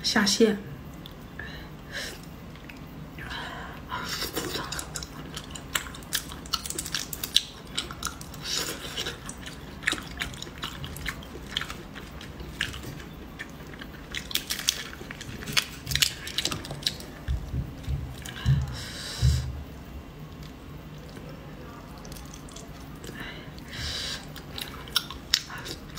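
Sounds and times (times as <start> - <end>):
person chewing prawns: 3.8 - 18.8, 20.3 - 25.9.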